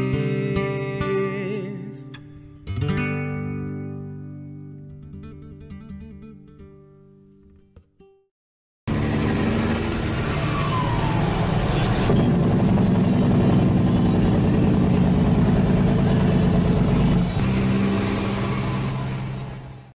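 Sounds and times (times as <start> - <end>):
heavy vehicle engine running: 8.9 - 20.0
high whistle sliding down: 8.9 - 20.0.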